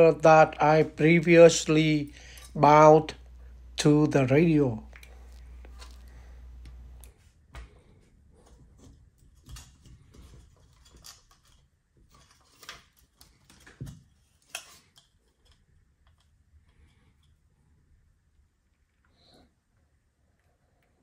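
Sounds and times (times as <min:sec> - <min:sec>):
low hum: 0:00.0 - 0:08.2.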